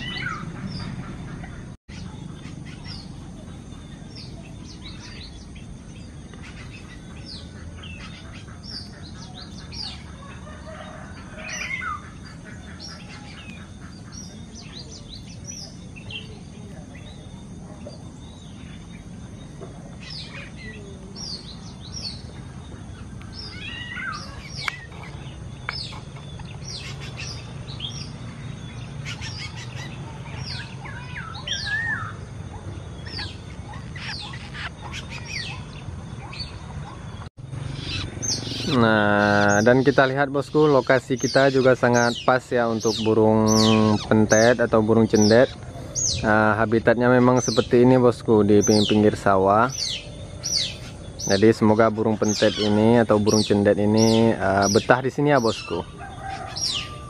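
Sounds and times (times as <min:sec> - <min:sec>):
small birds chirping: 0:00.0 - 0:57.0.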